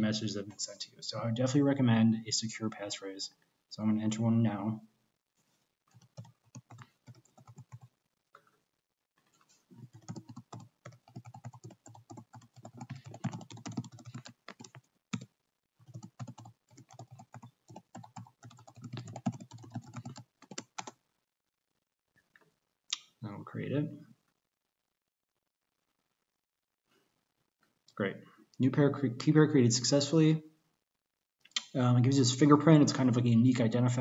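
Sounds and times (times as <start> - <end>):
typing on a keyboard: 5.9 - 7.9, 9.8 - 21.0.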